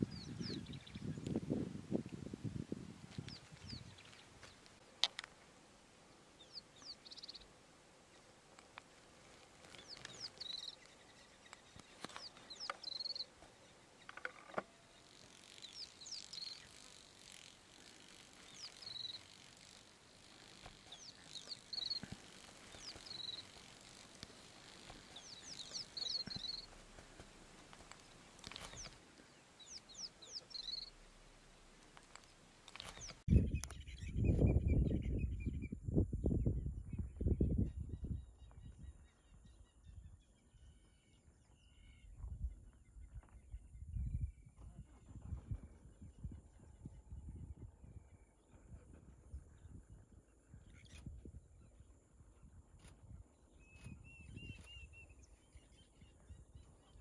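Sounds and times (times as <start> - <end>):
bird chirping rising call: 28.1 - 31.3.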